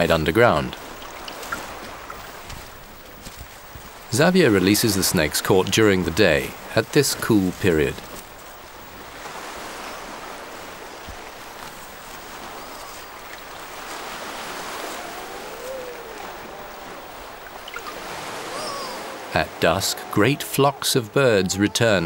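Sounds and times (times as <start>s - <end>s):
small waves washing onto beach: 0.0s - 22.0s
faint wavering calls: 12.3s - 22.0s.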